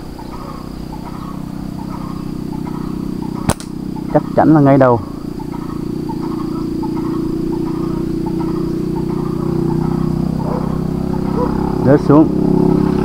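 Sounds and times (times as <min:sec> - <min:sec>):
high insect whine: 0:00.0 - 0:13.0
small engine idling: 0:00.0 - 0:13.0.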